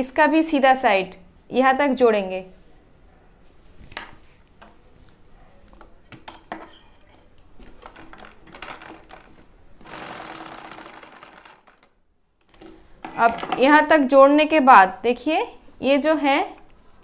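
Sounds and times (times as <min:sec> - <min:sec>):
sewing machine stitching: 0:07.8 - 0:11.9.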